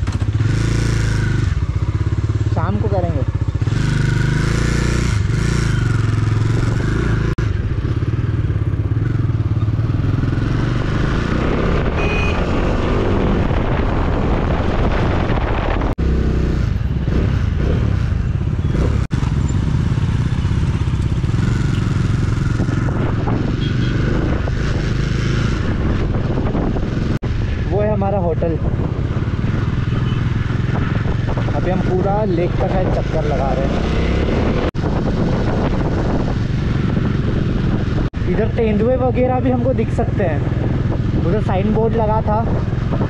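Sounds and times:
motorcycle engine running: 0.0 - 14.3, 15.4 - 43.0
rushing wind noise: 0.0 - 43.0.

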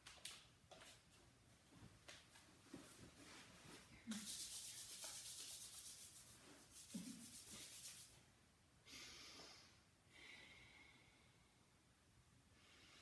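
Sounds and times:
soft breathy hiss: 3.2 - 13.0
palms rubbing together: 4.1 - 8.2.

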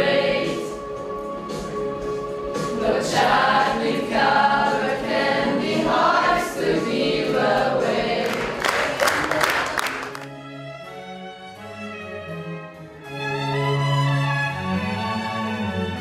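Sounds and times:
young voices singing together: 0.0 - 9.7
audience applause: 8.2 - 10.3.

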